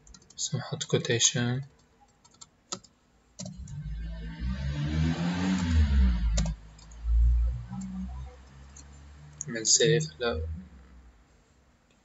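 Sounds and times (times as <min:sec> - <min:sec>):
vehicle driving past: 0:03.6 - 0:11.3.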